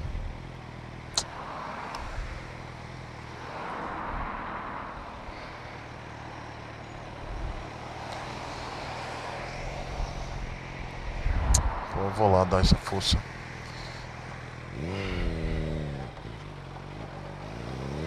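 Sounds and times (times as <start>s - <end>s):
motorcycle engine idling: 0.0s - 1.4s, 2.0s - 3.5s, 5.0s - 11.1s, 13.2s - 18.0s
road traffic passing: 0.0s - 18.0s.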